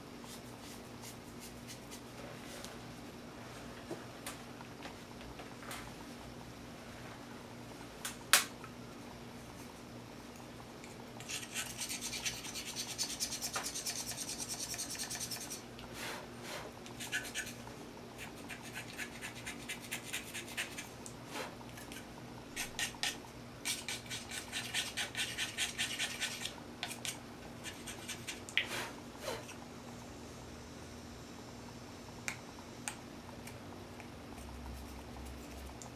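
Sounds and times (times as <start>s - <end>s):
hand tool scraping clay: 11.2s - 17.5s.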